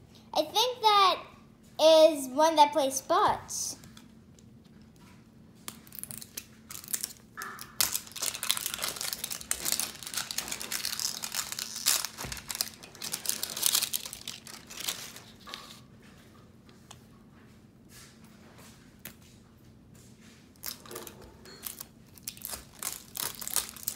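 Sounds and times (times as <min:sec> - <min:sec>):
plastic wrapping crinkling: 0:05.7 - 0:15.8, 0:20.5 - 0:23.9.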